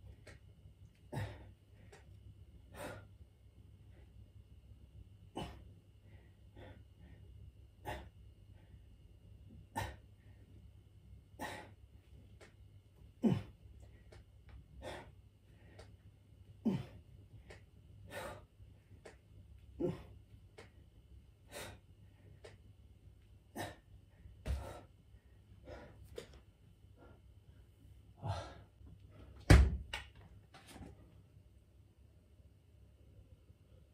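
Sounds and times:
man grunting: 13.2 - 13.6, 16.6 - 17.0, 19.8 - 20.1.

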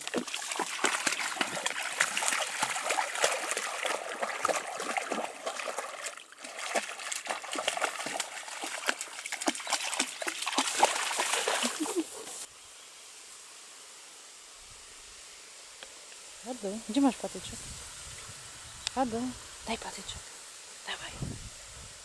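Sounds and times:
dog splashing through water: 0.0 - 12.5.

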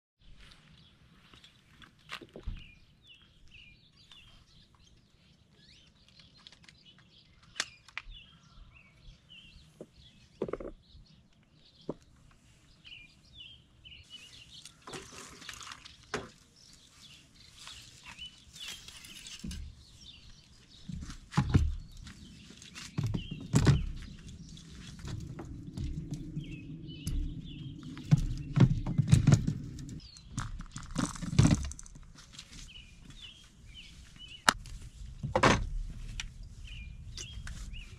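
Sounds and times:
small birds chirping: 0.2 - 37.9
knocks and rustling: 20.8 - 32.6, 34.5 - 36.3.

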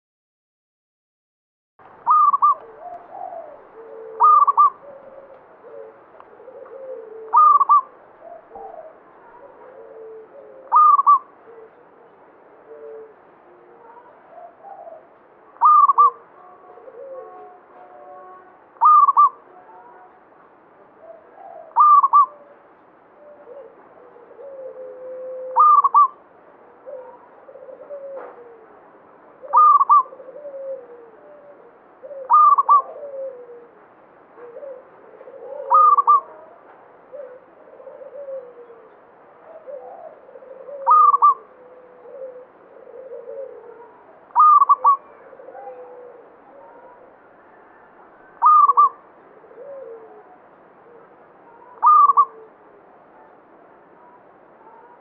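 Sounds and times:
soft low bird call notes: 2.0 - 9.4, 10.6 - 11.8, 14.8 - 20.2, 21.6 - 22.3, 25.5 - 26.2, 29.4 - 30.1, 32.1 - 33.4, 35.4 - 37.5, 40.6 - 42.5, 43.1 - 49.0, 51.5 - 52.5
dove cooing: 2.0 - 20.2, 21.0 - 55.0.

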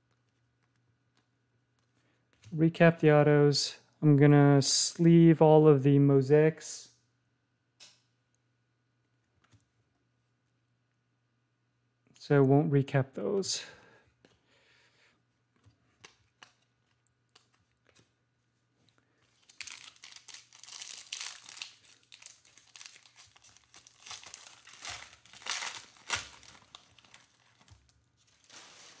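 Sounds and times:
foil wrapper crinkling and tearing: 19.3 - 29.0.

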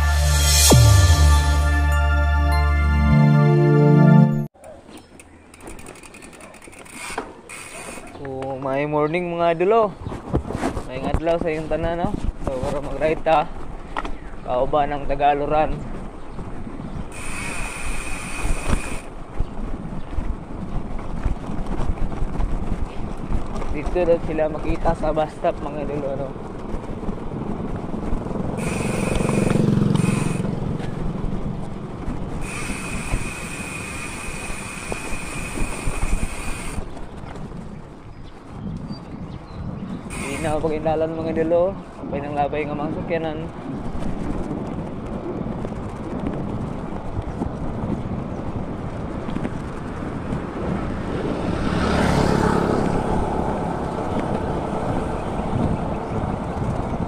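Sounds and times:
high even buzz: 0.0 - 4.5, 28.6 - 30.6, 40.1 - 40.8
road noise: 0.0 - 57.0
wind rumble on microphone: 8.9 - 57.0
motor vehicle rumbling past: 26.3 - 32.8, 48.7 - 57.0.

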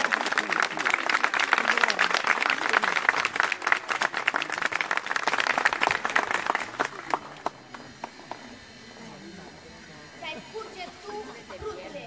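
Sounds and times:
audience applause: 0.0 - 8.7
crowd murmuring: 0.0 - 12.0.

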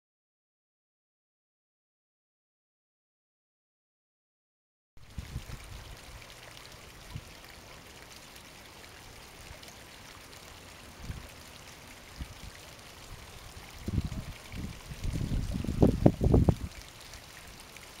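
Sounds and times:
wind buffeting microphone: 5.1 - 6.0, 11.0 - 11.3, 12.2 - 16.8.

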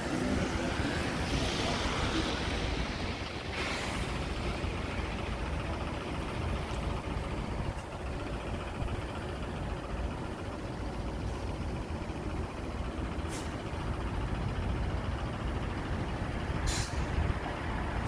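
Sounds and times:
traffic on wet road: 0.0 - 18.0
short high hisses: 3.5 - 4.2, 16.7 - 17.1.

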